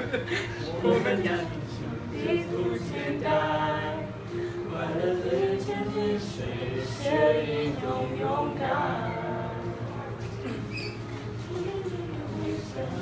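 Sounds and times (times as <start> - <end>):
girl singing slow melody: 8.2 - 13.0.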